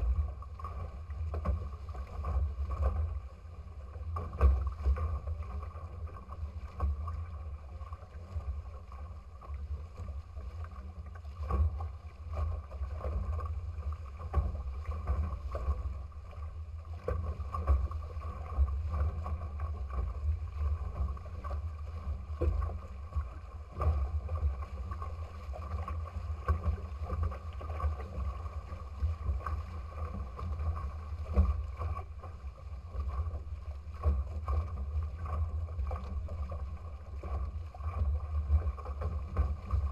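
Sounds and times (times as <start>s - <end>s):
water rushing against hull: 0.0s - 39.9s
wind rumble on microphone: 0.0s - 39.9s.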